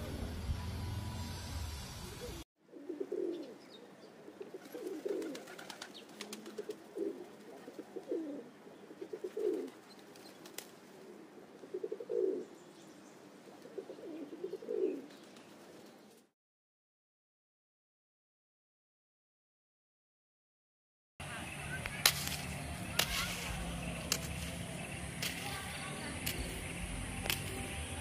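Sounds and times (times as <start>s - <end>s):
dove cooing: 2.2s - 12.6s, 13.4s - 15.8s.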